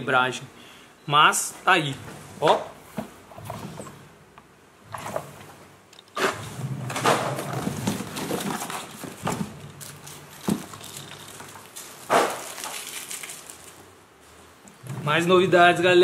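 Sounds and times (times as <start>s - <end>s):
cardboard box rustling: 7.1s - 13.8s.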